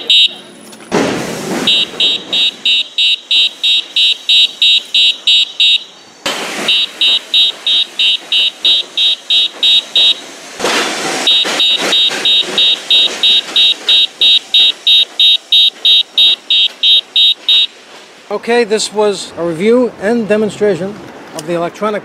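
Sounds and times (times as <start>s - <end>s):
electronic bicycle horn beeping: 0.0s - 0.5s, 1.6s - 10.3s, 11.2s - 17.8s
bursts of noise: 0.0s - 18.3s.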